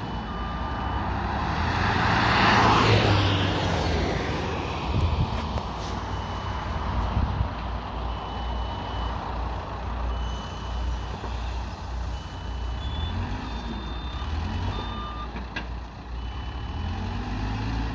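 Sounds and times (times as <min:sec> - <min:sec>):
higher-pitched alarm beeping: 0:00.0 - 0:03.5, 0:05.8 - 0:09.3, 0:10.1 - 0:15.3
reversing alarm beeps: 0:00.0 - 0:03.5, 0:04.3 - 0:09.4, 0:10.0 - 0:15.4, 0:16.1 - 0:17.2
diesel engine running: 0:00.0 - 0:17.9.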